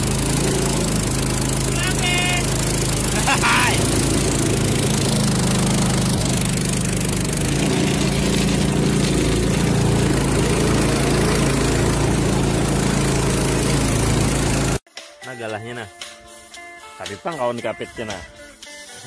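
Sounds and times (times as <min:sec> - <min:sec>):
small boat engine droning: 0:00.0 - 0:14.8.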